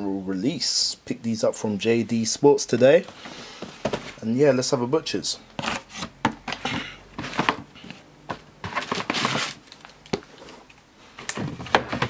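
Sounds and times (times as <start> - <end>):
paper wrapping rustling: 8.6 - 10.6
cardboard knocks and clicks: 11.3 - 12.0.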